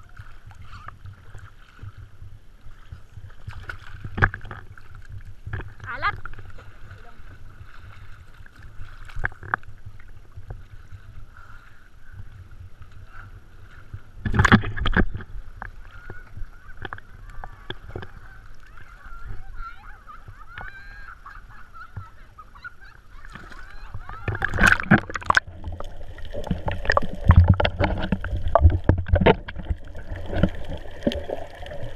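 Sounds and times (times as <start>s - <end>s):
water slapping: 0.0s - 31.9s
loud splash: 23.3s - 31.9s.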